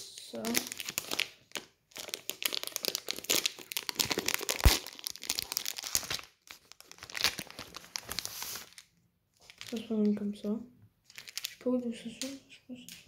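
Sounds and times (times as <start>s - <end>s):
plastic candy packet crinkling: 0.3s - 13.0s.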